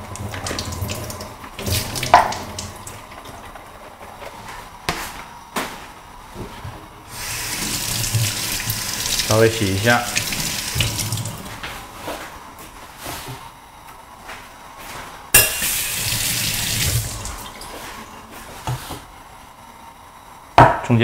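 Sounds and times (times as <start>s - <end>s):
tap water running into steel sink: 0.0s - 3.3s, 7.2s - 11.5s, 15.4s - 17.8s.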